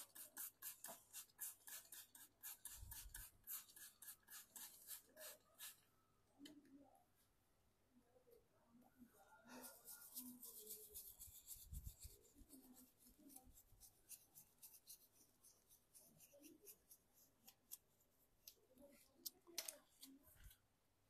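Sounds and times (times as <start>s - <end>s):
brush scrubbing: 0.0s - 5.8s, 9.6s - 17.6s.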